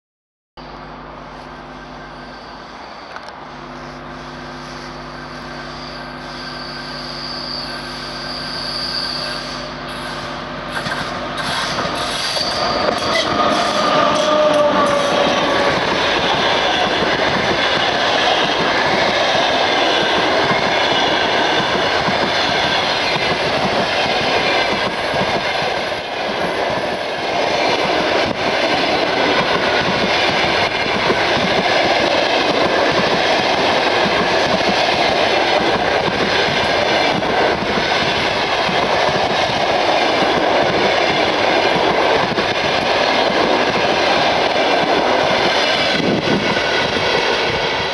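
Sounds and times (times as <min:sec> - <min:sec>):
train wheels on rails: 0:00.7 - 0:47.9.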